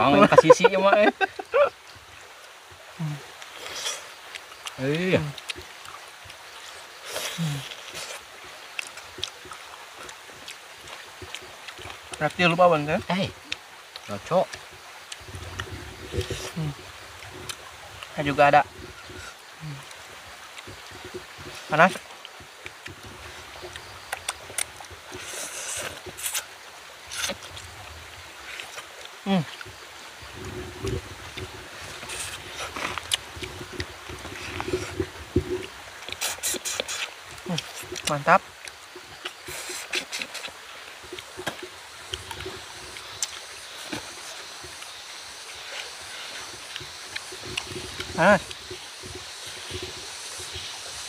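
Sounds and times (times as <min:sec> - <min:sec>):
steady outdoor hiss: 0:00.0 - 0:51.0
mouth smacks: 0:32.1 - 0:38.2.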